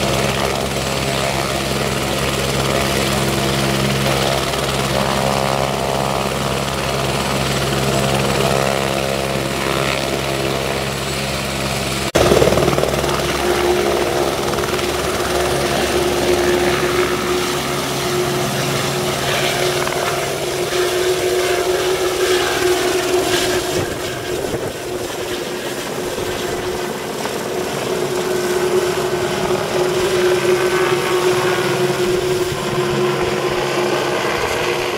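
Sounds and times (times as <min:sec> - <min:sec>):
helicopter turbine and rotor: 0:00.0 - 0:34.9
steady whine: 0:12.2 - 0:34.9.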